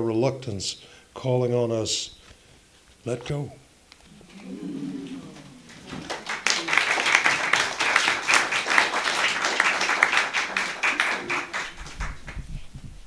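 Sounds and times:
audience applauding: 4.1s - 12.4s.

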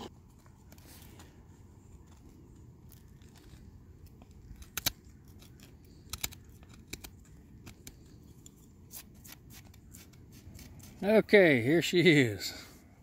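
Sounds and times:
knife shaving wood: 0.1s - 11.1s.

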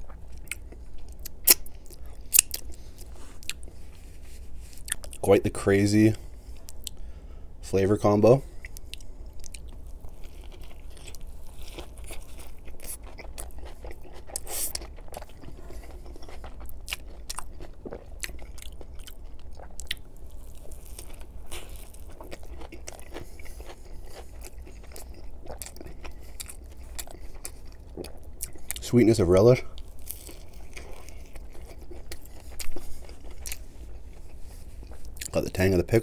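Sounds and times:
biting and chewing: 8.5s - 29.1s, 29.7s - 35.6s.

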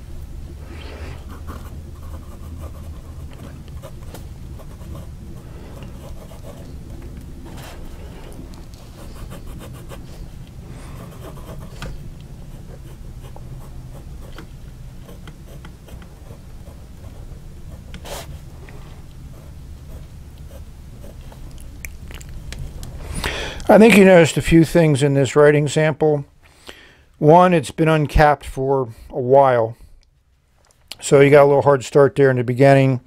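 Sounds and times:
low steady hum: 0.0s - 33.0s
fountain pen scratching on paper: 1.2s - 6.8s, 8.7s - 18.3s, 19.3s - 21.4s.

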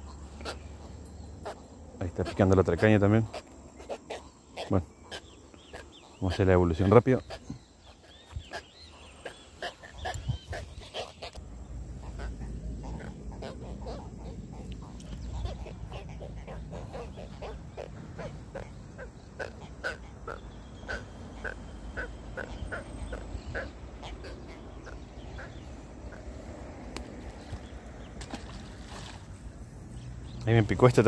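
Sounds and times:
catfish croaking: 8.4s - 26.8s.

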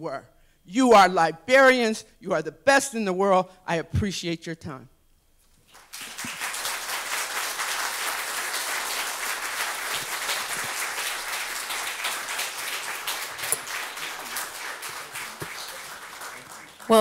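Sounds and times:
audience applauding: 5.7s - 17.0s.

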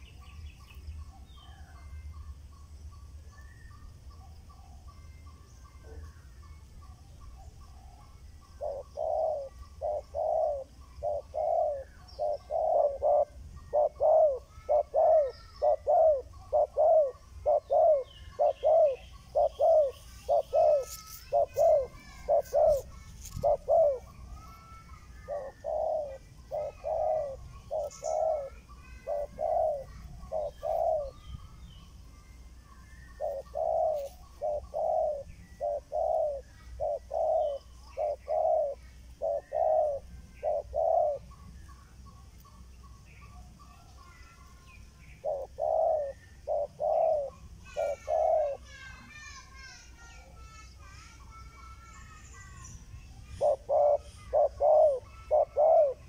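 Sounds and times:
dove cooing: 7.2s - 31.4s, 33.0s - 42.2s, 45.0s - 48.9s, 53.2s - 56.0s.

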